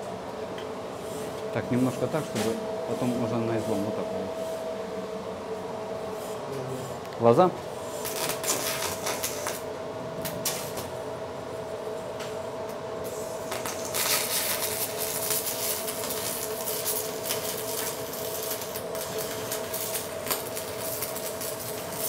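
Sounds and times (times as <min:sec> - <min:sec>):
welding arc crackling hiss: 0:06.2 - 0:11.0, 0:13.0 - 0:22.0.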